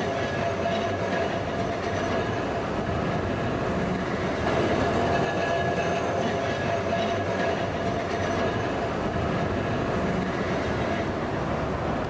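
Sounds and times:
tram wheels rumbling on rail: 0:00.0 - 0:12.0.

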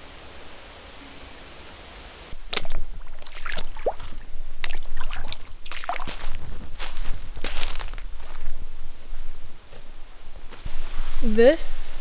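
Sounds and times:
boots splashing through water: 0:02.4 - 0:08.0.

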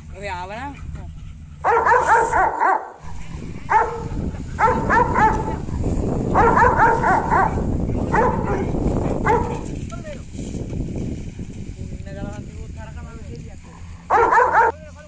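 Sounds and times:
dog barking: 0:01.6 - 0:09.6, 0:14.0 - 0:14.8.

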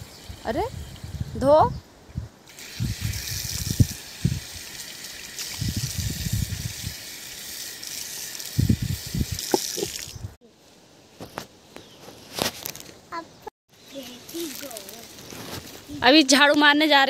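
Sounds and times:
water running from a tap: 0:02.5 - 0:10.2
water splashing on skin: 0:02.5 - 0:10.2.

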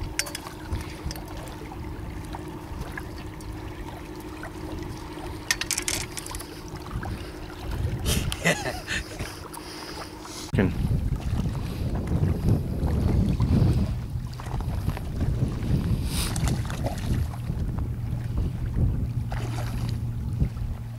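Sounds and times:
wind rumbling on microphone: 0:00.0 - 0:09.5, 0:10.5 - 0:20.9
faint steady hum: 0:00.0 - 0:20.9.

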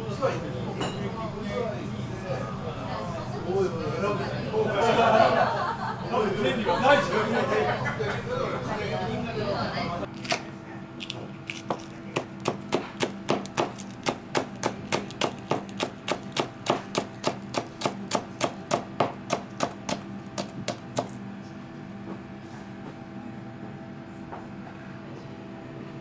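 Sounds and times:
knife chopping on plastic board: 0:11.0 - 0:21.2.

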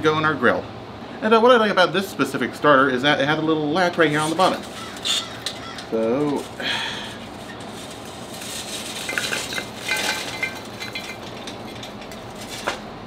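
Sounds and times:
charcoal clinking and clattering: 0:04.0 - 0:13.0.

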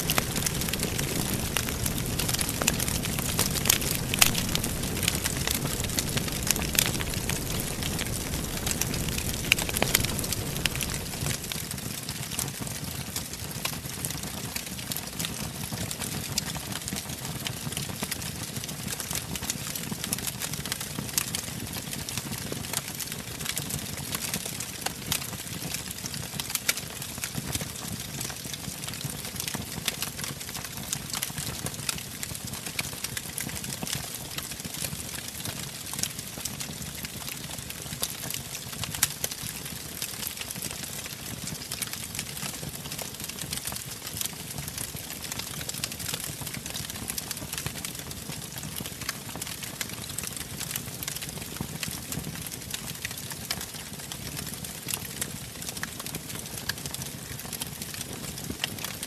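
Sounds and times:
fire flames rushing: 0:00.0 - 0:12.5
burning logs crackling and popping: 0:00.0 - 0:59.0.

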